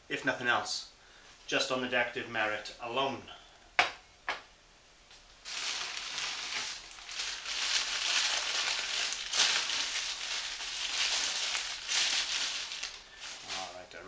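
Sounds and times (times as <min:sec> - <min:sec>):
wrapping crinkling: 0:05.4 - 0:14.0.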